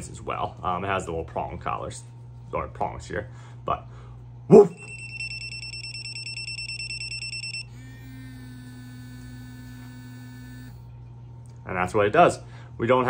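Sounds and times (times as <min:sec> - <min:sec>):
rapid high-pitched pulsing beep: 0:04.7 - 0:07.7
vibration motor buzzing: 0:05.9 - 0:11.0.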